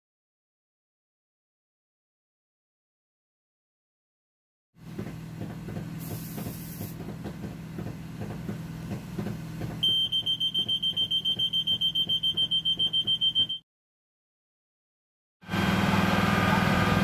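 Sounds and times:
aerosol spray hiss: 0:06.0 - 0:07.0
smoke detector alarm beeping: 0:09.8 - 0:13.6.

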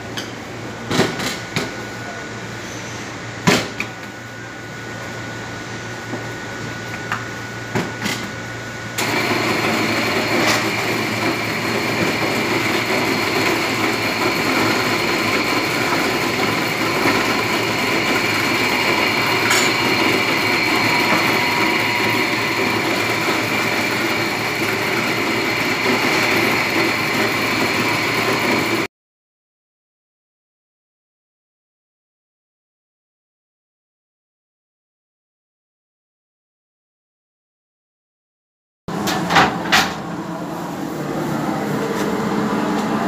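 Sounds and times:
kitchen machinery whirring: 0:06.6 - 0:28.9, 0:38.9 - 0:43.0
faint high whine: 0:15.6 - 0:26.0.

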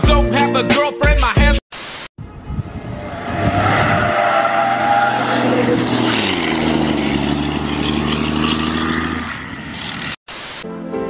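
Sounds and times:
bus diesel engine pulling: 0:02.7 - 0:10.2.

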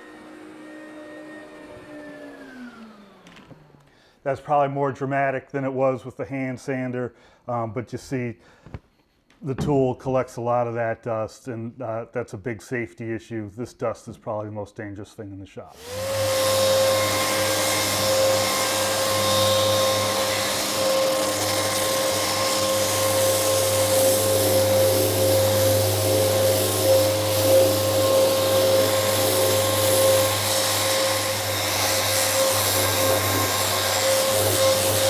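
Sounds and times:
orbital sander whine: 0:00.0 - 0:03.8, 0:15.8 - 0:35.0.

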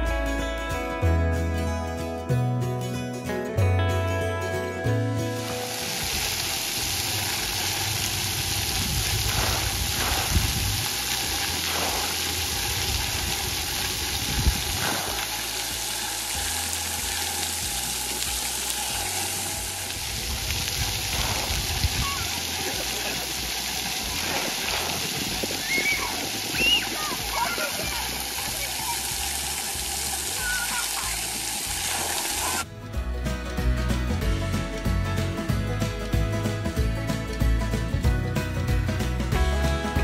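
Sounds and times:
water jets spraying on pavement: 0:05.3 - 0:32.7.

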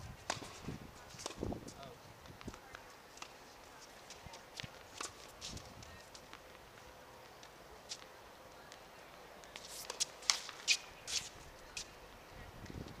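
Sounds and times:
shoes scuffing on a hard court: 0:09.4 - 0:11.9.

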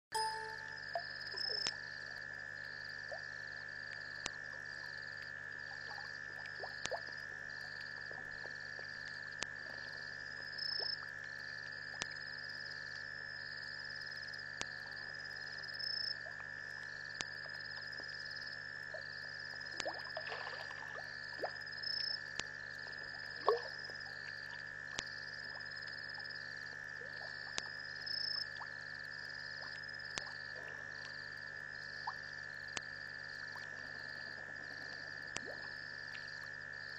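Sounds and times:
short high chirp: 0:00.1 - 0:00.8
high insect drone: 0:07.1 - 0:36.9.

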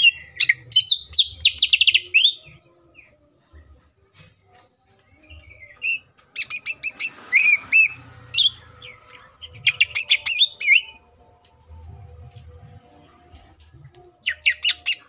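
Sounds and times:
bird singing varied song: 0:00.0 - 0:11.2, 0:13.8 - 0:15.0.

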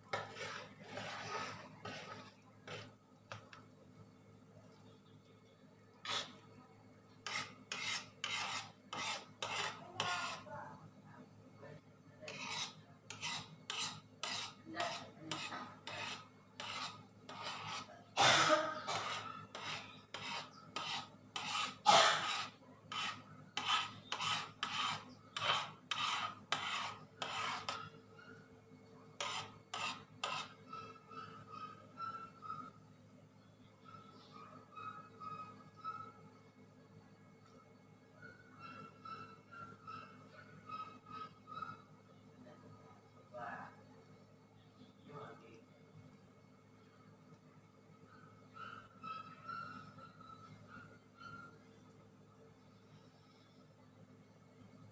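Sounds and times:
metal spoon scraping wok: 0:00.0 - 0:03.6, 0:06.0 - 0:06.4, 0:07.2 - 0:10.5, 0:12.3 - 0:18.1, 0:18.7 - 0:28.0, 0:29.2 - 0:31.9.

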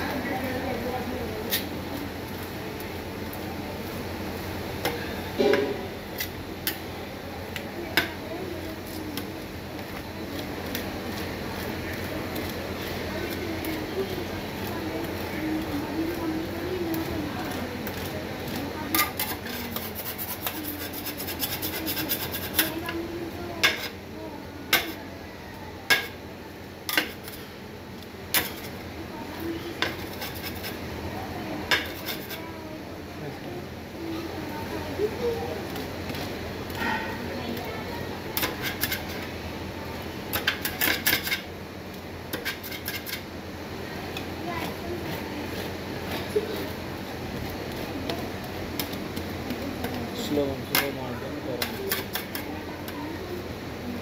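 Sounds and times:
metal spatula scraping cold plate: 0:18.9 - 0:22.8, 0:29.8 - 0:30.8, 0:31.7 - 0:32.4, 0:38.4 - 0:39.2, 0:42.3 - 0:43.2.

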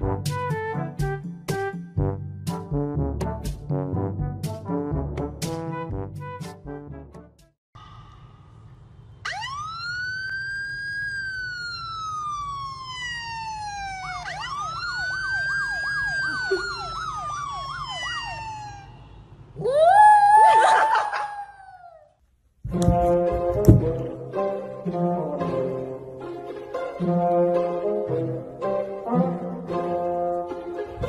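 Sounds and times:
siren wailing from a phone: 0:09.2 - 0:19.2.

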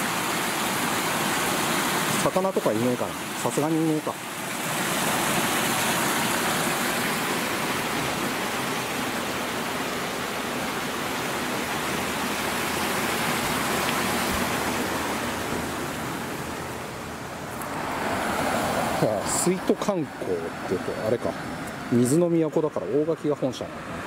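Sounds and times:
water gushing into a pool: 0:00.0 - 0:16.0.

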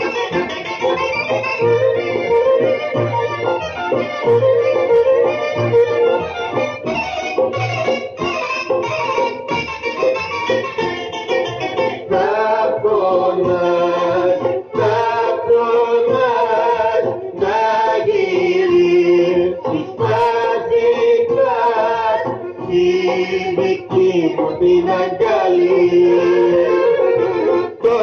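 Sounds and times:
instrumental backing: 0:00.0 - 0:28.0
solo voice singing: 0:12.1 - 0:28.0.

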